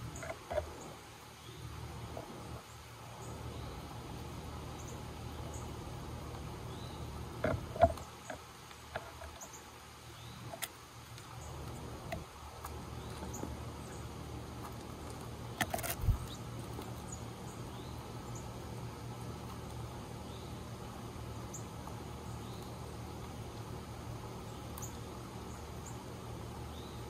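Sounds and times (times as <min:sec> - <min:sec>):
steady low hum: 0:00.0 - 0:27.0.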